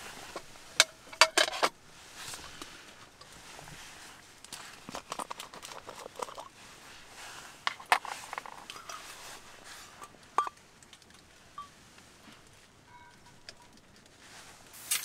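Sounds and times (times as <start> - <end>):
metallic clinks with ringing: 12.9 - 13.6.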